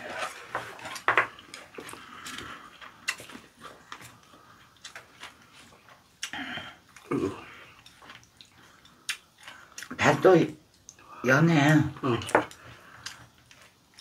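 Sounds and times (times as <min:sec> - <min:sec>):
soft eating noises: 0:00.0 - 0:14.0
chopsticks tapping dishes: 0:00.5 - 0:01.6.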